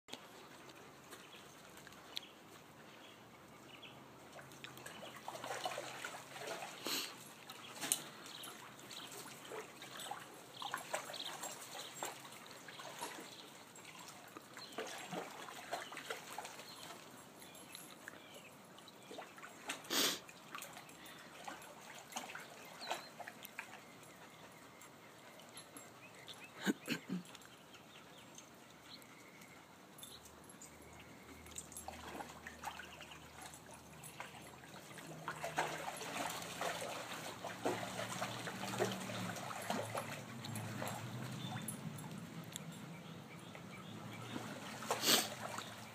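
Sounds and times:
water splashing in wading pool: 4.2s - 17.4s, 18.8s - 25.5s, 31.5s - 45.9s.

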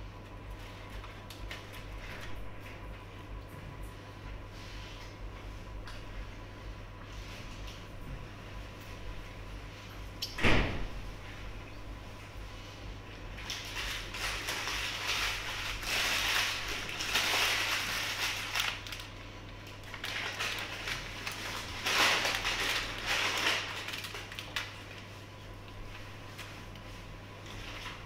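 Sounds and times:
paper bag rustling: 13.4s - 25.1s
paper wrapper crumpling: 13.4s - 25.1s.

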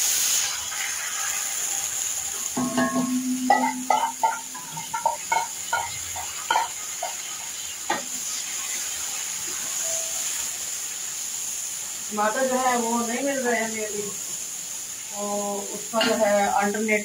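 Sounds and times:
onions sizzling in oil: 0.0s - 17.0s
metal bowl scraping and clinking: 2.6s - 6.7s.

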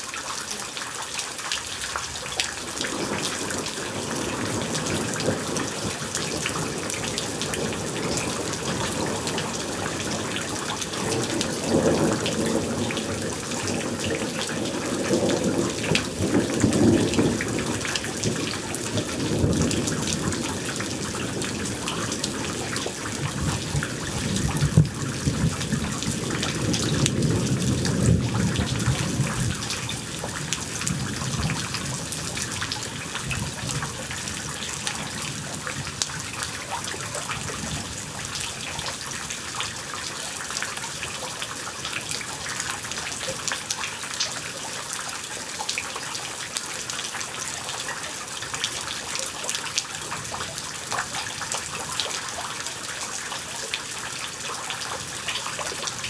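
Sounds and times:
steady rain falling: 0.0s - 56.0s
low rumble of thunder: 2.6s - 39.1s.

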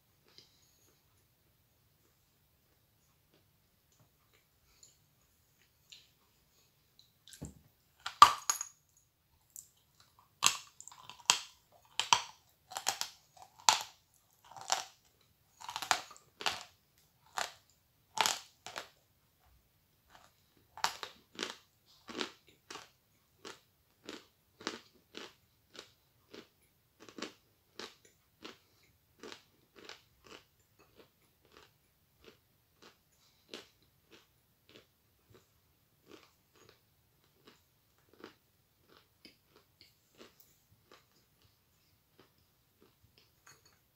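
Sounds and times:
crunchy chewing of chalk: 9.4s - 19.0s, 20.1s - 43.7s.

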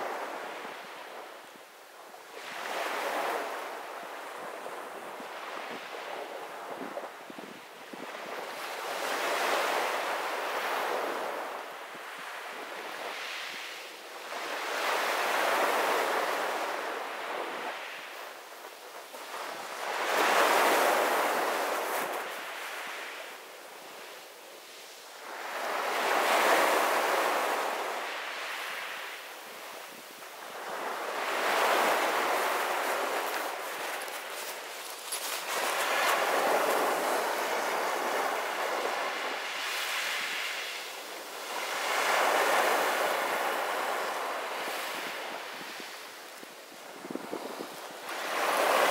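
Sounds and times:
waves washing up pebble beach: 30.6s - 40.6s.

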